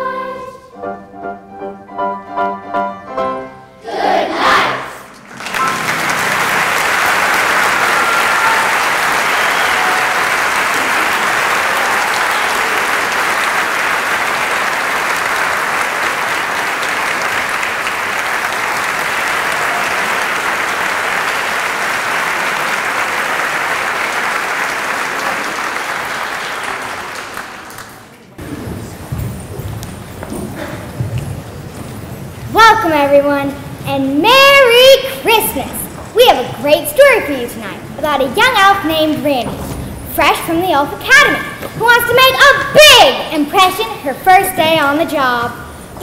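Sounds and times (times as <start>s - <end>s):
audience applauding: 5.1s - 28.3s.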